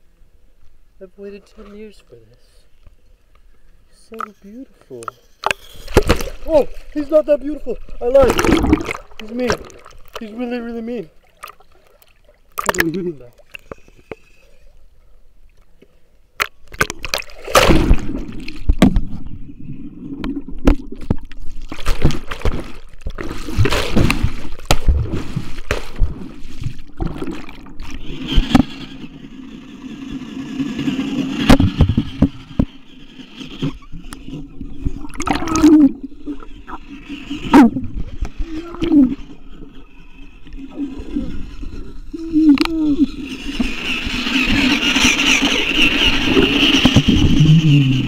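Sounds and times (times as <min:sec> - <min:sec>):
water splashing and gurgling: 0:05.4 - 0:15.8, 0:16.4 - 0:48.0
camera knocking and rubbing: 0:28.2 - 0:28.9, 0:31.4 - 0:32.7.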